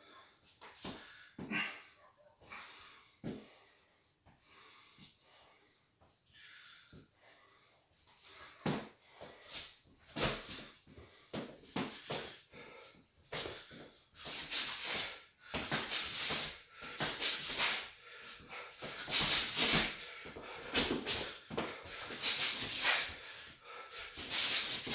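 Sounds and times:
sharp hissing exhalations: 0:12.1 - 0:24.9.

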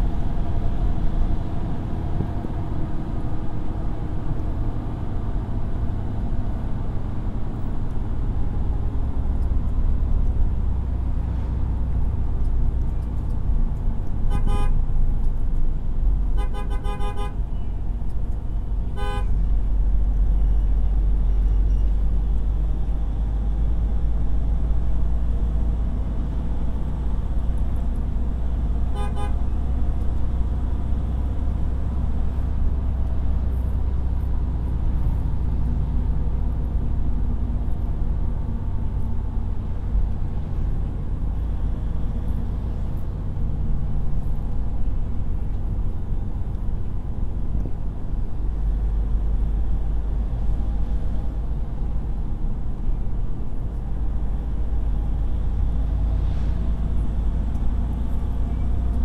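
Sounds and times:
vehicle engine and road rumble: 0:00.0 - 0:59.0
short horn toots: 0:28.9 - 0:29.4.

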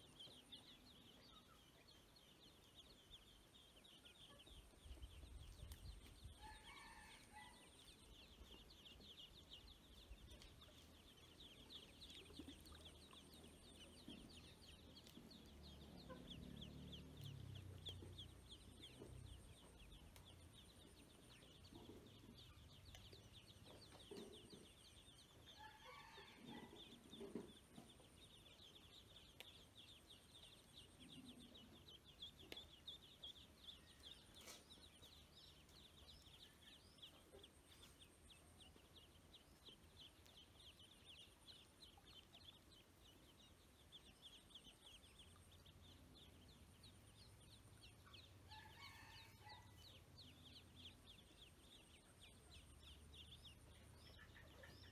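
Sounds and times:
ducklings peeping: 0:00.0 - 0:54.9.

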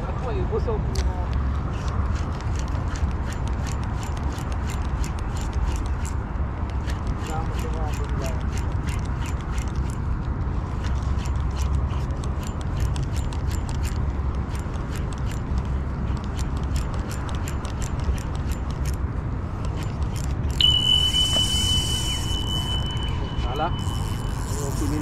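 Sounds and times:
low rumble: 0:20.5 - 0:25.0
high electronic beep: 0:20.6 - 0:24.8.

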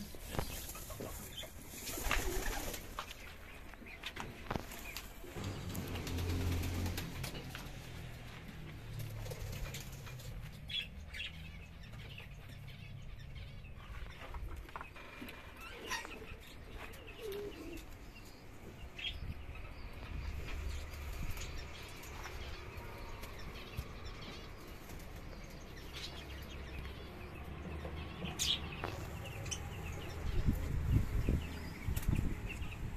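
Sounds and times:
birds flapping wings: 0:01.8 - 0:03.2, 0:04.4 - 0:08.0, 0:08.9 - 0:10.4.

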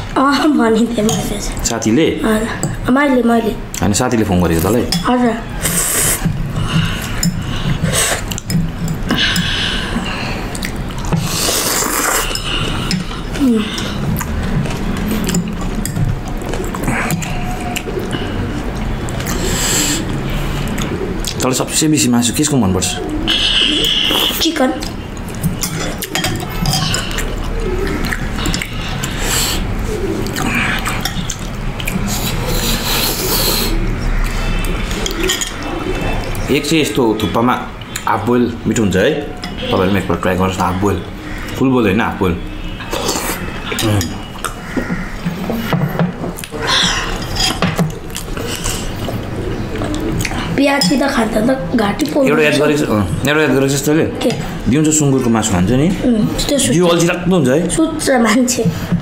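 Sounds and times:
people slurping noodle soup: 0:05.5 - 0:21.3, 0:23.2 - 0:24.5, 0:25.6 - 0:36.4, 0:42.6 - 0:44.6, 0:46.4 - 0:50.6
cutlery clicking in ceramic bowls: 0:14.2 - 0:18.0, 0:24.8 - 0:29.2, 0:35.0 - 0:35.6
forks clinking on ceramic bowls: 0:25.4 - 0:27.4, 0:35.0 - 0:35.6, 0:46.8 - 0:47.9.

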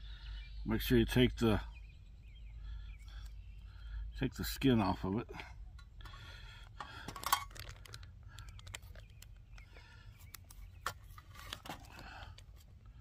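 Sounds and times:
crinkling rustles of plastic: 0:06.6 - 0:12.8.

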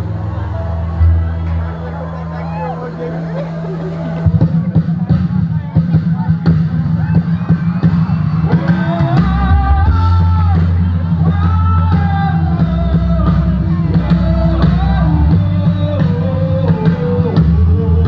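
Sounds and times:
gospel band music: 0:00.0 - 0:18.0
heavy bass: 0:00.0 - 0:18.0
person singing long notes: 0:08.5 - 0:18.0.

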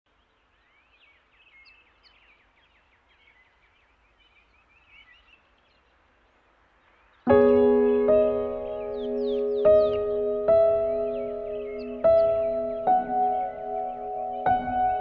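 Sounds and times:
faint birds chirping: 0:00.1 - 0:15.0
piano-like keyboard chords: 0:07.3 - 0:15.0.

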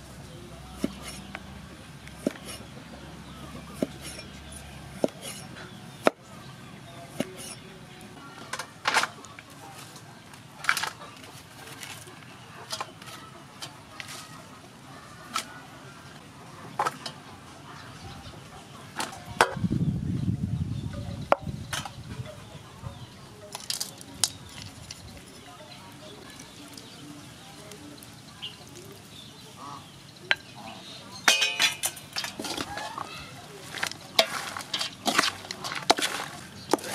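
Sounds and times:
spoon clinking in metal bowl: 0:31.2 - 0:32.3.

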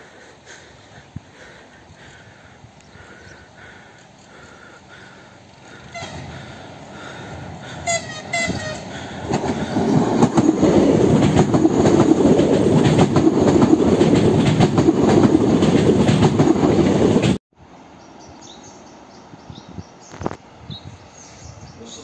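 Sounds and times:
train passing with wheel clacks: 0:02.6 - 0:17.4
train horn blasts: 0:05.9 - 0:06.6, 0:07.7 - 0:09.1.

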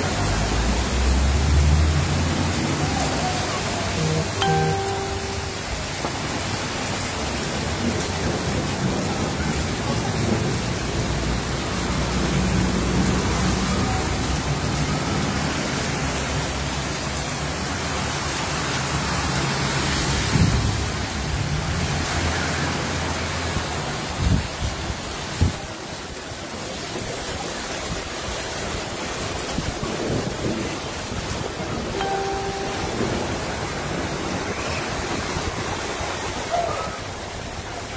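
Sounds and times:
cars driving through floodwater: 0:00.0 - 0:37.9
heavy rain falling: 0:00.0 - 0:37.9.

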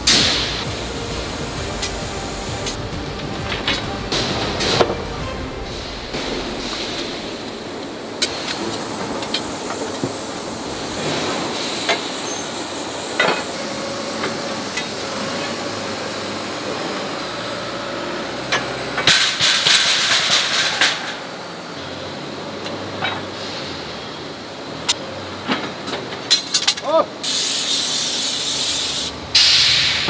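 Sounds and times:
metal clanks and knocks: 0:00.0 - 0:00.7, 0:01.6 - 0:09.5
clattering metal strikes: 0:00.0 - 0:09.9
forge shop hiss: 0:00.0 - 0:22.1, 0:26.6 - 0:30.0.

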